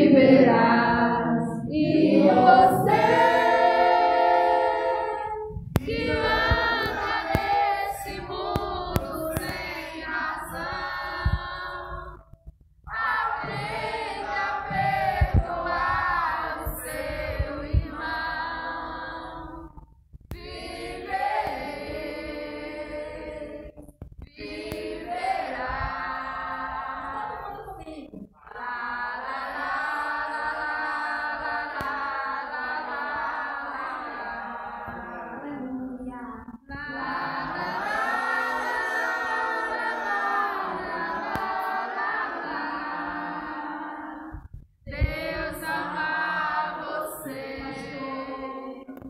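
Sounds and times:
amplified person singing: 0:00.0 - 0:19.8
dull low thumps: 0:05.2 - 0:22.1.

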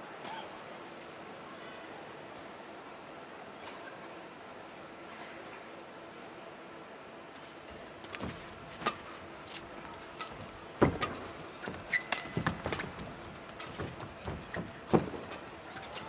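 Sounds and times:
shoes squeaking on court floor: 0:07.7 - 0:16.0
racquets hitting shuttlecock: 0:07.8 - 0:16.0.

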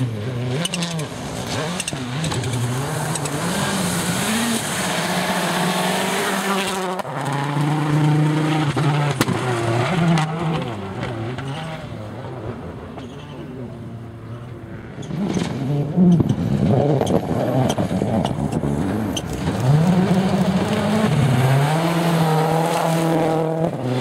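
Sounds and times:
rally car engine revving: 0:00.0 - 0:24.0.

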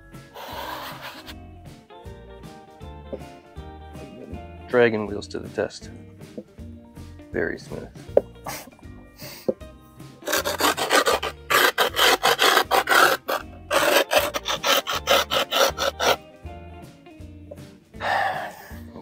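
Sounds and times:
grip tape rasping: 0:00.4 - 0:01.4, 0:10.2 - 0:16.2.

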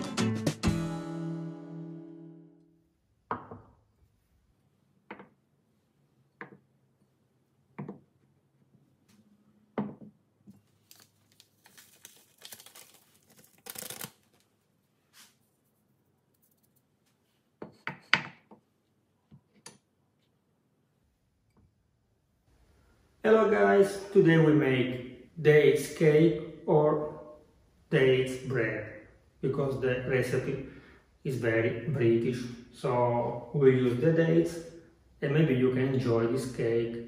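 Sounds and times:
sachet rustling: 0:10.6 - 0:16.9.

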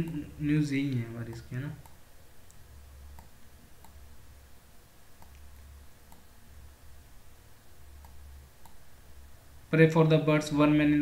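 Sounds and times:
computer mouse clicks: 0:00.8 - 0:04.0, 0:05.2 - 0:06.3, 0:08.0 - 0:08.8.

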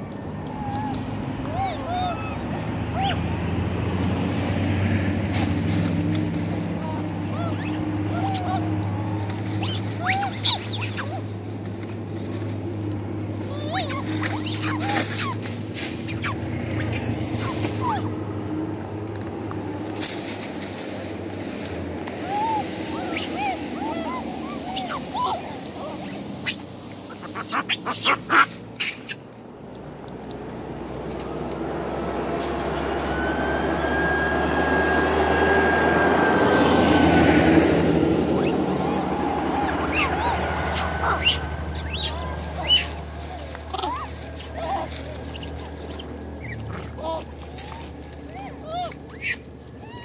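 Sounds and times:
truck driving past: 0:00.0 - 0:50.0
monkeys squeaking: 0:00.5 - 0:04.8, 0:05.4 - 0:12.4, 0:13.4 - 0:18.2, 0:22.2 - 0:29.2, 0:37.9 - 0:50.0.

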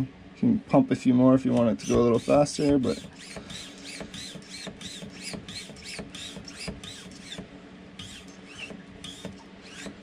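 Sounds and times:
hand pump squeaking: 0:01.8 - 0:07.4, 0:08.0 - 0:10.0.

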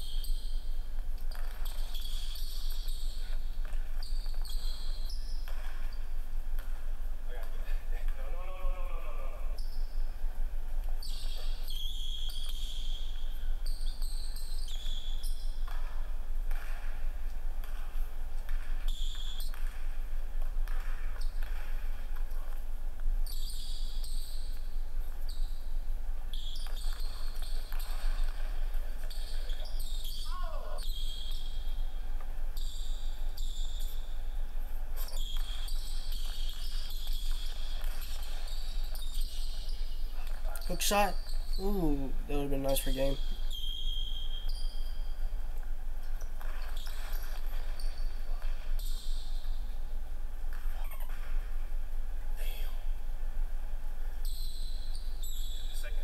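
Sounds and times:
sneaker squeaks: 0:00.0 - 0:10.0, 0:10.9 - 0:17.0, 0:17.6 - 0:19.9, 0:23.2 - 0:34.3, 0:35.0 - 0:49.8, 0:50.5 - 0:51.6, 0:54.2 - 0:56.0
basketball bouncing on wood floor: 0:46.4 - 0:49.0.

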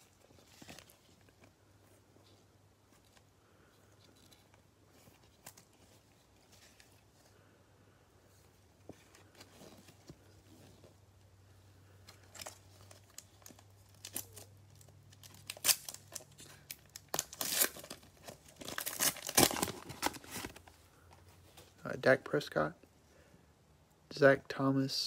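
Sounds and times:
foil pack tearing and crinkling: 0:12.3 - 0:20.6.

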